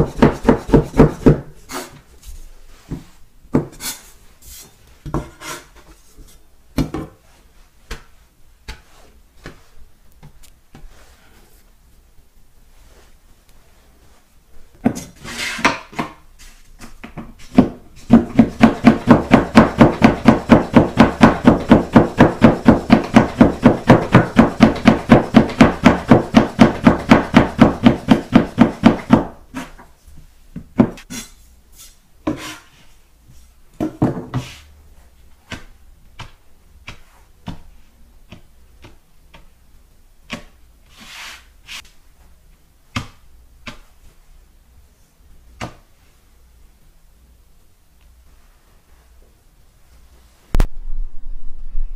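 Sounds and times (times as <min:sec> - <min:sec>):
knife chopping on wooden board: 0:00.0 - 0:01.5, 0:17.5 - 0:29.4.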